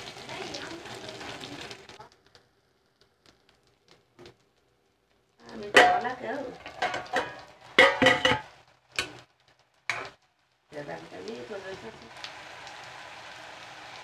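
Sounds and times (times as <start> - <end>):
metal pots and lid clattering: 5.6 - 9.2, 9.9 - 10.2.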